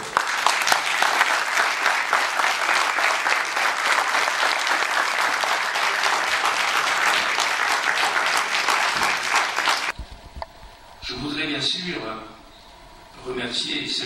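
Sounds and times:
large crowd applauding: 0.0s - 10.0s.

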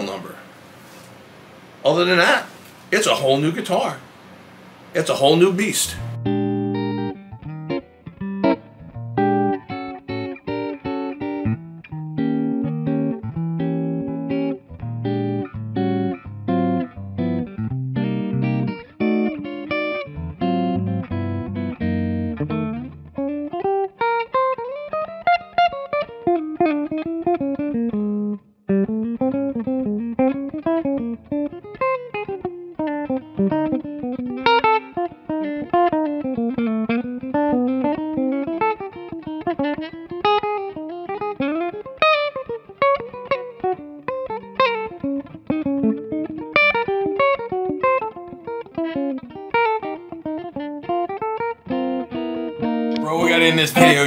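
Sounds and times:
electric guitar lead runs: 5.9s - 23.9s.

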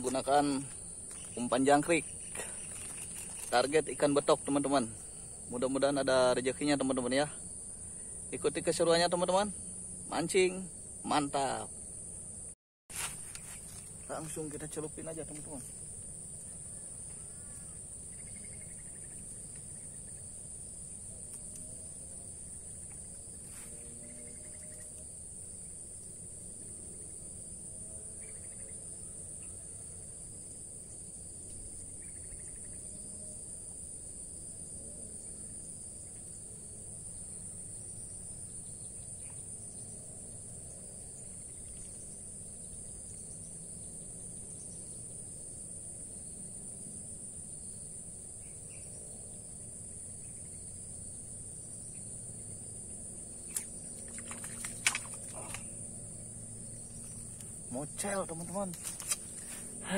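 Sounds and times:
insects droning: 0.0s - 59.9s
sharp clicks and rustles: 2.3s - 3.6s, 53.5s - 55.7s, 58.6s - 59.7s.

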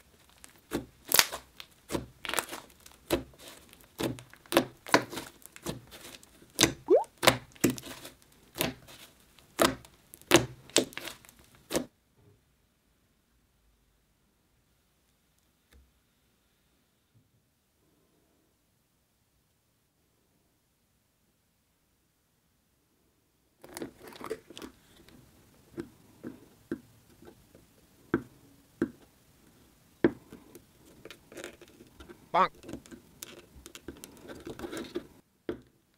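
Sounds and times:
fingers squishing soft slime: 0.3s - 11.8s.

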